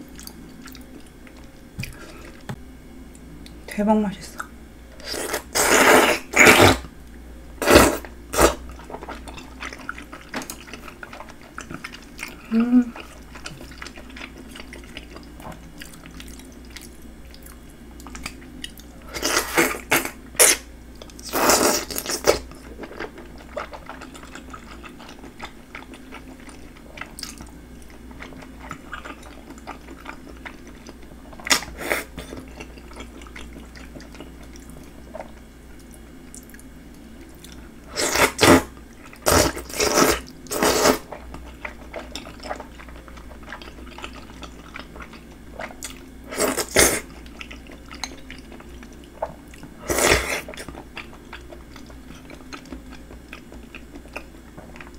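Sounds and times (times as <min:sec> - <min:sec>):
soft wet chewing: 0:00.0 - 0:03.6, 0:08.4 - 0:21.2, 0:21.8 - 0:54.9
loud noodle slurping: 0:05.2 - 0:06.8, 0:38.0 - 0:41.1.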